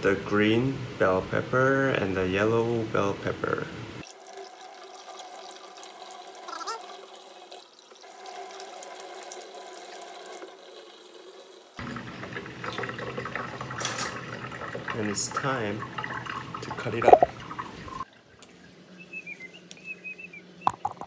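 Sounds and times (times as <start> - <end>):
fuller background noise: 0.0 - 21.0
faucet running water: 4.0 - 19.0.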